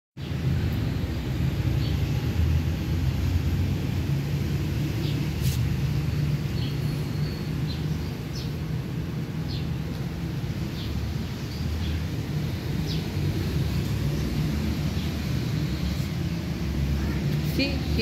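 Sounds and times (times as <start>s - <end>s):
steady low rumble: 0.3s - 18.0s.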